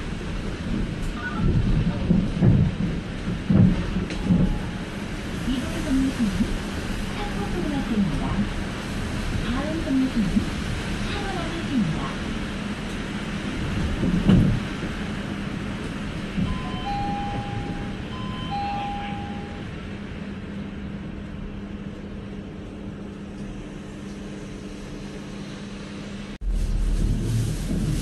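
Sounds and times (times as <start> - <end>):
bus engine hum: 0.0 - 28.0
two-tone electronic beeps: 16.5 - 19.6.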